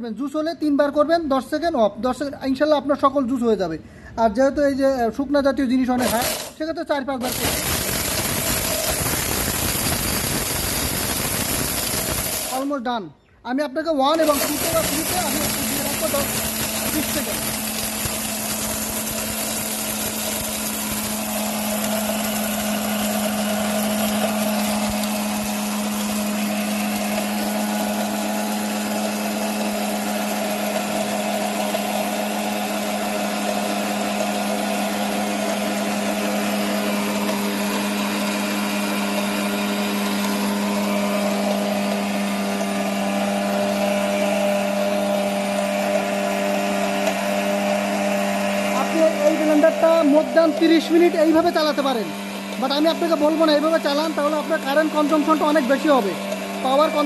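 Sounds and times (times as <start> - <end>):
blender motor grinding: 5.9 - 6.6, 7.2 - 12.8, 14.1 - 57.0.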